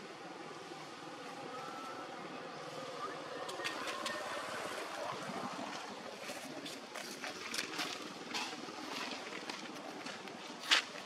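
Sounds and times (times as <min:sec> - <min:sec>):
steady background hiss: 0:00.0 - 0:11.0.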